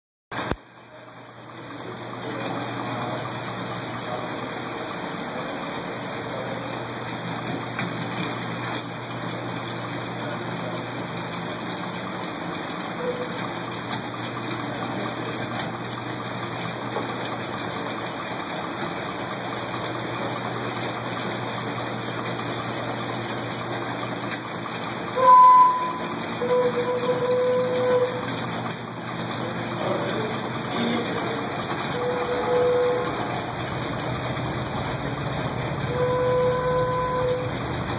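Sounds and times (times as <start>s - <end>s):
air compressor running: 0.3s - 37.9s
organ pipe notes: 25.2s - 28.2s, 31.9s - 33.4s, 35.8s - 37.9s.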